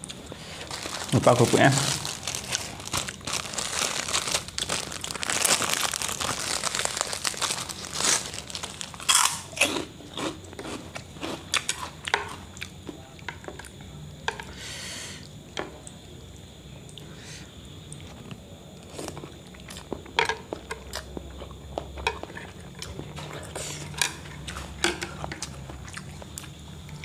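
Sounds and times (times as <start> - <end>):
crackers crunching: 0.0 - 13.8
plastic bag crinkling: 0.2 - 9.5.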